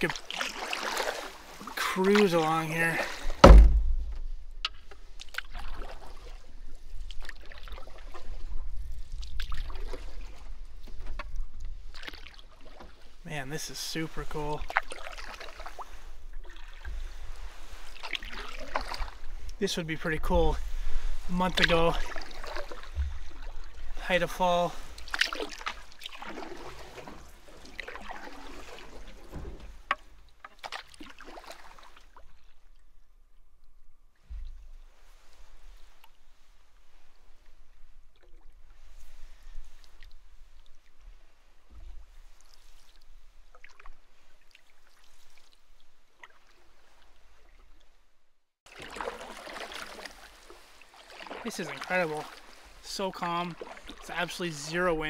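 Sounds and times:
small splashes and drips: 0:00.0 - 0:02.4, 0:03.0 - 0:13.2, 0:14.6 - 0:19.6, 0:21.6 - 0:24.0, 0:24.7 - 0:37.5, 0:38.1 - 0:47.9, 0:48.7 - 0:54.3
paddle strokes in water: 0:00.0 - 0:48.0, 0:48.7 - 0:55.0
thump: 0:03.4 - 0:04.4, 0:29.3 - 0:29.8, 0:34.3 - 0:34.6
low rumble: 0:03.4 - 0:04.7.

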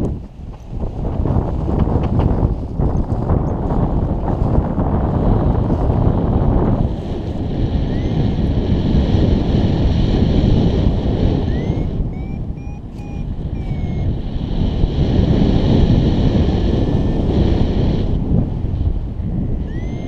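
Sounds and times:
wind rumble on microphone: 0:00.0 - 0:20.0
faint high chirping tones: 0:11.5 - 0:14.1, 0:19.7 - 0:20.0.

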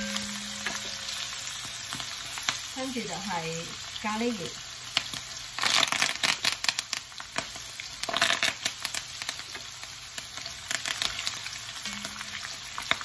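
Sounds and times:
oil sizzling in a wok: 0:00.0 - 0:13.0
oil crackling and spattering: 0:04.8 - 0:11.8.

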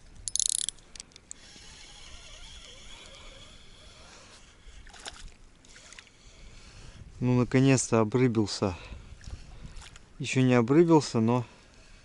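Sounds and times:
reel clicks: 0:00.2 - 0:03.7
fishing reel whirring: 0:00.3 - 0:04.4.

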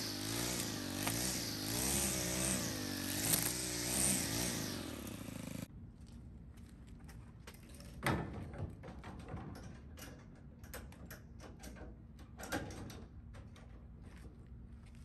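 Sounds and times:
tools clattering in truck bed: 0:07.8 - 0:13.9.

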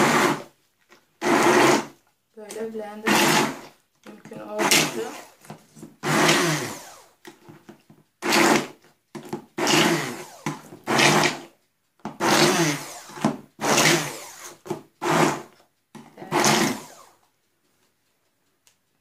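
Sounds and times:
immersion blender bursts: 0:00.0 - 0:00.5, 0:01.2 - 0:02.0, 0:03.0 - 0:03.7, 0:04.5 - 0:05.4, 0:06.0 - 0:07.2, 0:08.2 - 0:08.8, 0:09.5 - 0:17.2.

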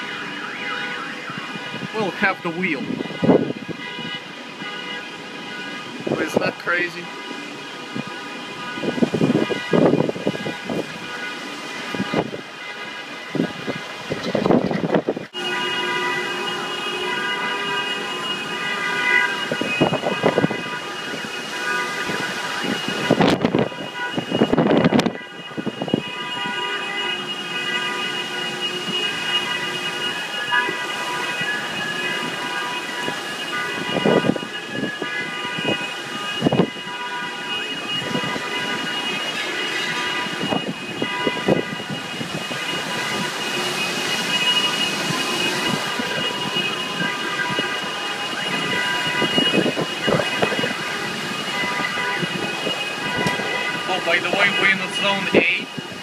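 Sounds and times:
car alarms blaring: 0:00.0 - 0:56.0
wind buffeting microphone: 0:02.8 - 0:04.6, 0:07.6 - 0:15.4, 0:19.1 - 0:27.4, 0:28.0 - 0:54.5.

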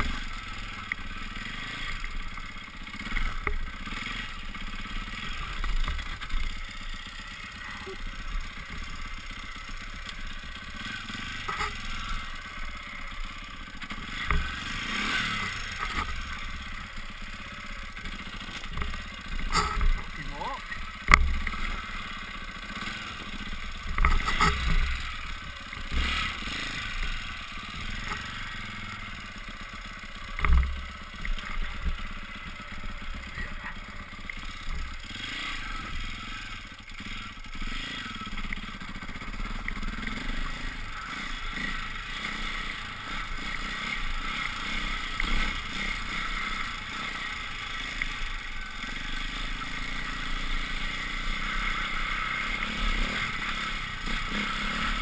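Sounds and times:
off-road motorcycle engine: 0:00.0 - 0:55.0.

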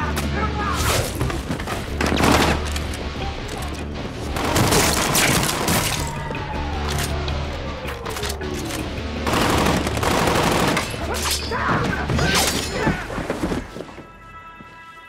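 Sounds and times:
dramatic music score: 0:00.0 - 0:15.0
gunshots: 0:04.3 - 0:06.1, 0:09.3 - 0:11.2.

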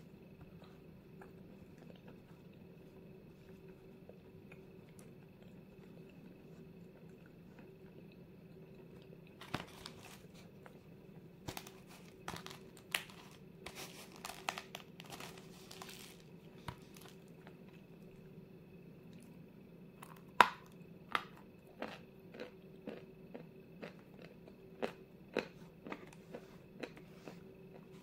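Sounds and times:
dry clay crunching: 0:11.5 - 0:17.5.

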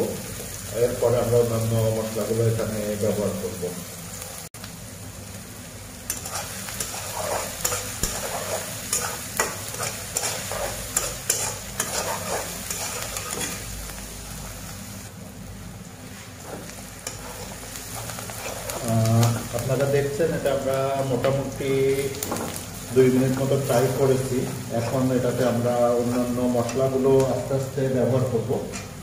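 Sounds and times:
food sizzling in hot oil: 0:00.0 - 0:29.0
metal spatula scraping a wok: 0:06.1 - 0:13.7, 0:16.4 - 0:19.6.

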